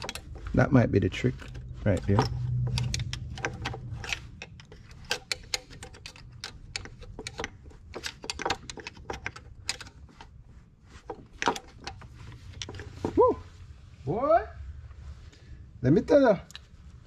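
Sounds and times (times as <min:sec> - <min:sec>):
engine parts clicking and knocking: 0:00.0 - 0:13.2.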